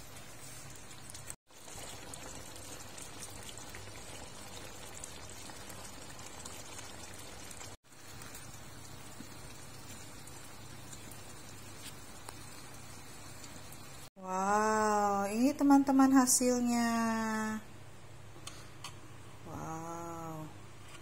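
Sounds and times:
sauce bubbling in a wok: 0.0 - 14.1.

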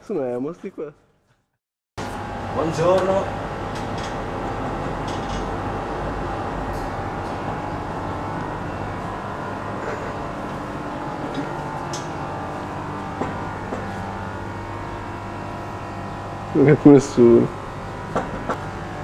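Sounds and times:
machine hum with low tones: 2.0 - 19.0.

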